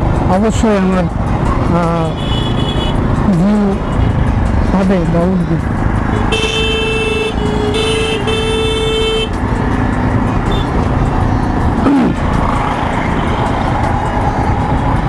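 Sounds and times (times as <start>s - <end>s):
traffic and road noise: 0.0s - 15.0s
vehicle horn honking: 2.1s - 3.0s, 6.1s - 9.4s, 10.5s - 10.8s.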